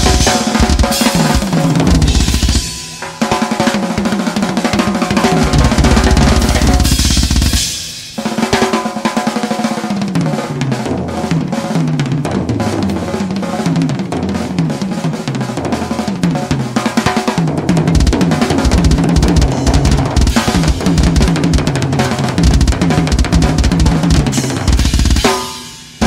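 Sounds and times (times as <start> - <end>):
cymbal crash: 0.0 - 3.3
fast bass drum: 0.0 - 7.9, 10.2 - 26.0
snare and tom strokes: 0.0 - 9.0, 16.0 - 26.0.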